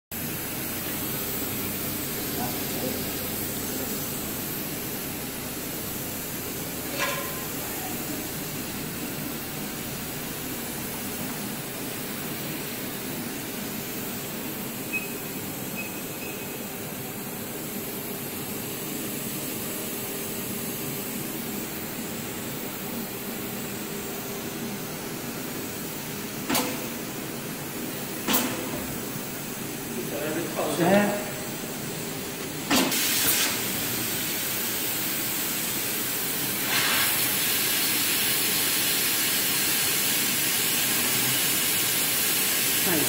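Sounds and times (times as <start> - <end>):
short faint beeps: 14.9 - 15.2, 15.8 - 16.6.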